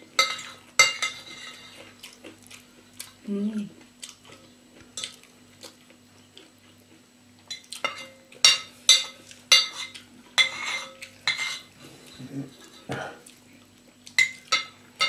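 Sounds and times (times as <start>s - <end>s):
cutlery clinking on ceramic bowl: 0.2s - 1.8s, 7.5s - 11.7s, 14.2s - 14.8s.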